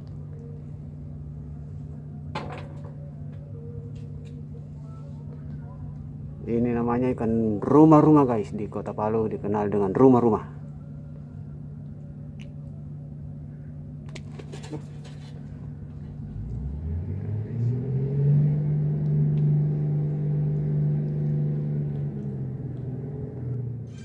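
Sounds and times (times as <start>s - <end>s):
engine humming: 0.0s - 24.0s
second engine rising drone: 15.6s - 24.0s.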